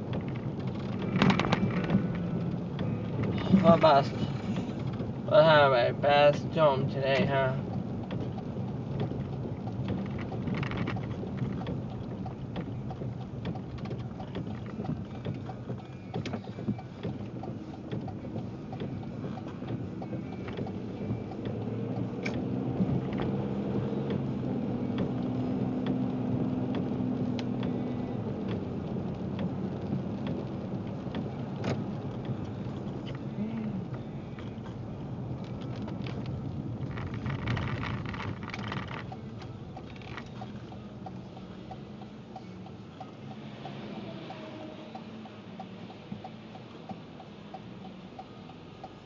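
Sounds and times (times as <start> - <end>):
car engine and tyre hum: 0.0 - 49.0
raindrops ticking on car: 0.0 - 49.0.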